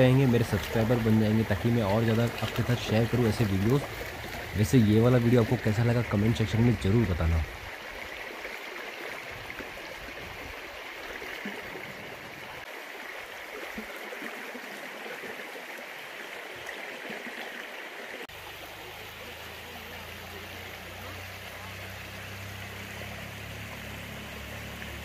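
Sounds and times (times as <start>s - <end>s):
stream flowing over stones: 0.0s - 25.0s.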